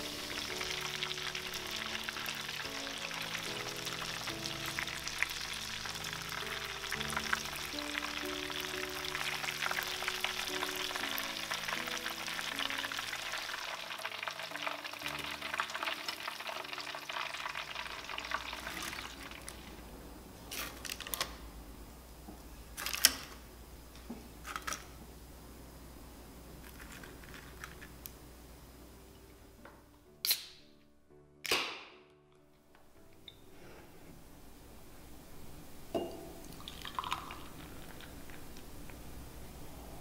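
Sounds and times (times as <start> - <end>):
food deep-frying in oil: 0.0 - 19.9.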